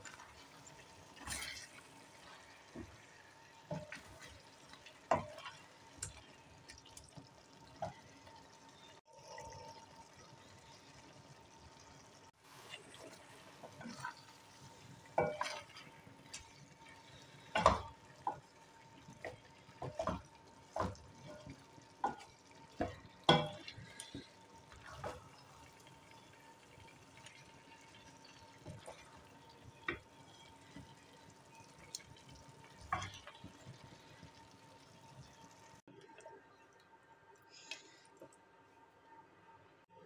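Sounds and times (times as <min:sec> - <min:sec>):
spatula scraping a metal pot: 0:01.1 - 0:02.5.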